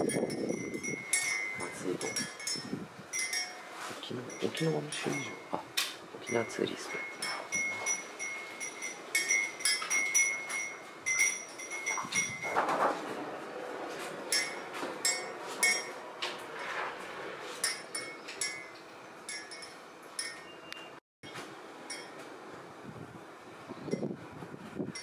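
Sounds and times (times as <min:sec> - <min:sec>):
wind chime tinkling: 0:00.0 - 0:05.6, 0:06.2 - 0:12.6, 0:17.6 - 0:20.6.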